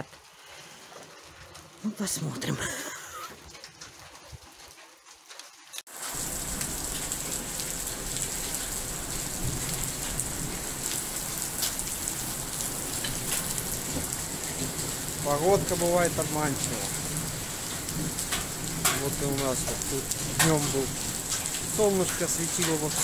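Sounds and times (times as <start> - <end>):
heavy rain hissing: 5.9 - 23.0
sharp raindrop hits: 5.9 - 23.0.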